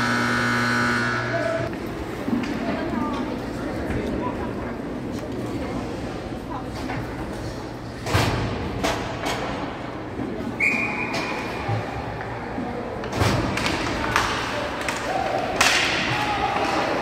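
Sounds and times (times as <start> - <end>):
hockey pucks and sticks banging boards: 13.0 - 17.0.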